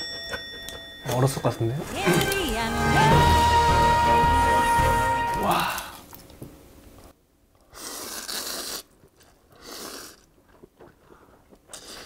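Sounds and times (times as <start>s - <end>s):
noodles being slurped: 7.6s - 12.0s.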